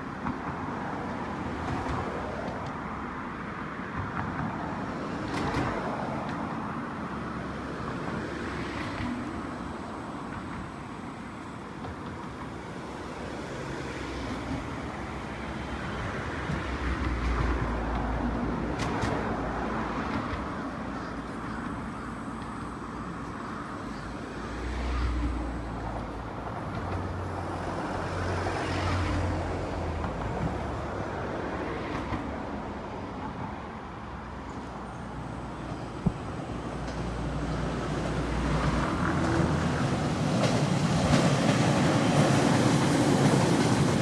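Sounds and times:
distant road traffic hum: 0:00.0 - 0:44.0.

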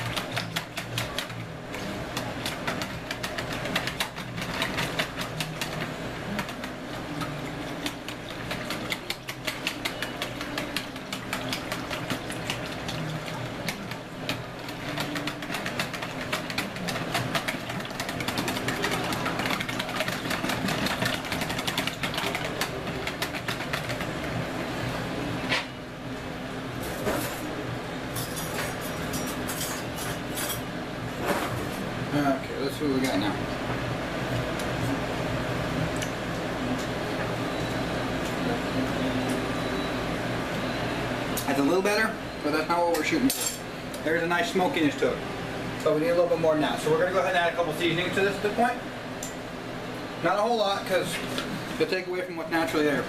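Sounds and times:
whisk clattering in plastic bowl: 0:00.0 - 0:01.4, 0:02.0 - 0:06.7, 0:07.8 - 0:24.3.

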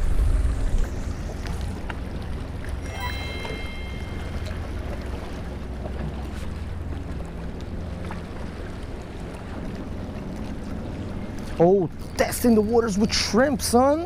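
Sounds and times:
wind rumbling on microphone: 0:00.0 - 0:02.9.

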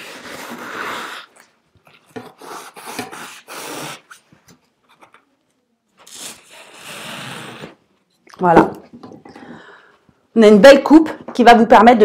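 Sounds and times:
knife sawing through foam: 0:00.0 - 0:01.3, 0:02.3 - 0:04.1.

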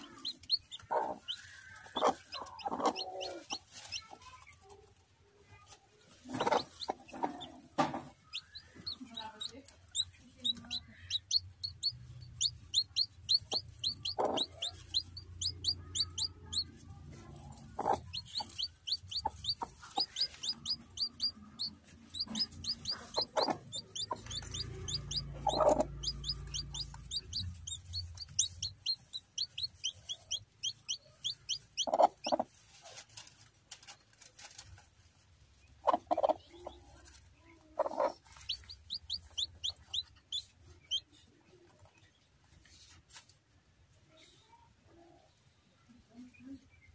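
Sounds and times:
hen clucking: 0:00.0 - 0:04.4, 0:05.9 - 0:32.6, 0:35.6 - 0:41.8
chicks peeping: 0:00.0 - 0:43.3.

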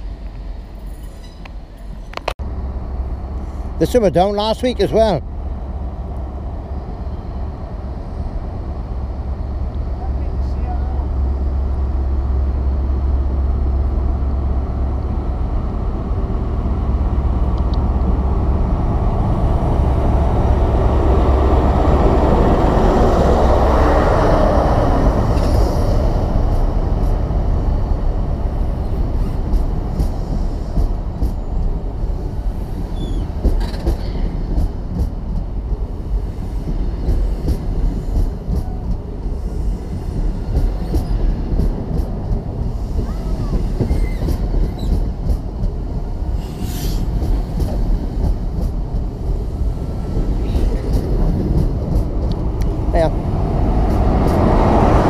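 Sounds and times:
diesel train engine droning: 0:00.0 - 0:55.0
train coaches rumbling: 0:00.0 - 0:55.0
train wheels clicking: 0:28.8 - 0:31.8, 0:32.7 - 0:35.6, 0:36.2 - 0:52.8.

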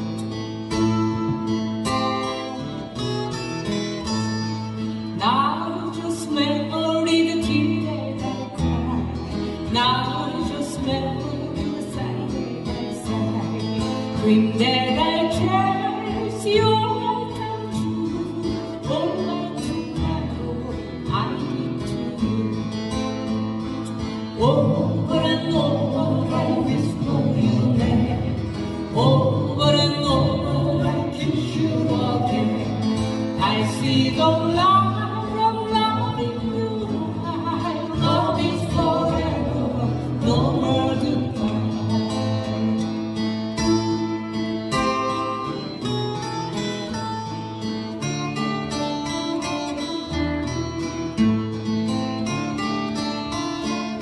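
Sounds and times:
acoustic guitars strummed: 0:00.0 - 0:54.0
voices singing: 0:24.4 - 0:42.1.

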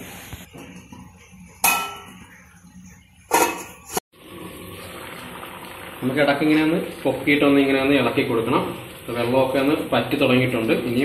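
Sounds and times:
metal lid clanging onto pan: 0:01.6 - 0:02.2, 0:03.3 - 0:04.0.

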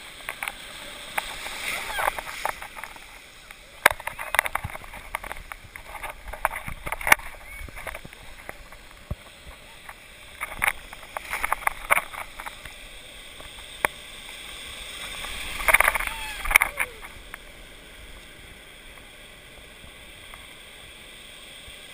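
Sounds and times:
sea water sloshing and splashing: 0:00.1 - 0:17.9
sharp clicks and knocks: 0:00.2 - 0:12.8.

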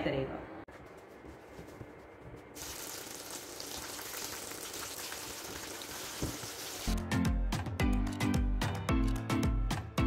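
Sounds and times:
batter sizzling in hot oil: 0:02.6 - 0:06.9.

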